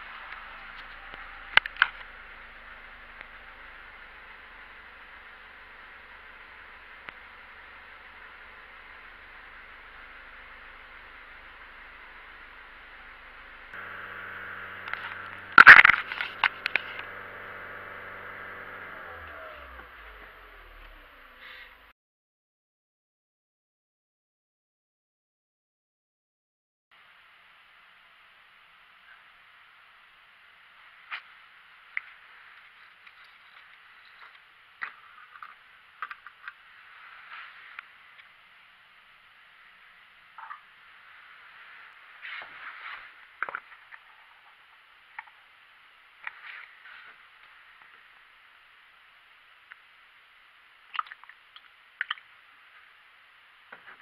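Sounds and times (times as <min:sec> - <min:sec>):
car engine idling: 0:00.0 - 0:21.9.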